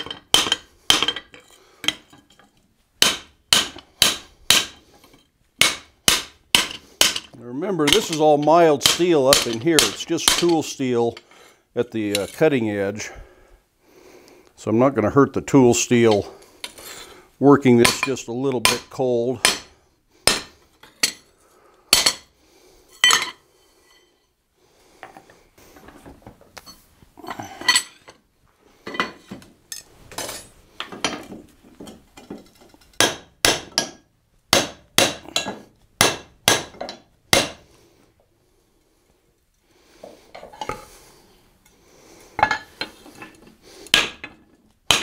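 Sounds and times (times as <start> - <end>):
hammer striking steel on anvil: 3.0 - 4.8, 5.6 - 10.7, 17.8 - 19.7, 20.3 - 21.2, 21.9 - 22.3, 33.0 - 37.6.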